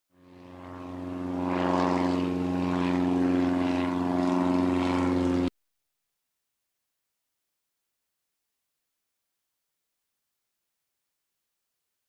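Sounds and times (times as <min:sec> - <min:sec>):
propeller airplane engine running: 0:00.1 - 0:05.5.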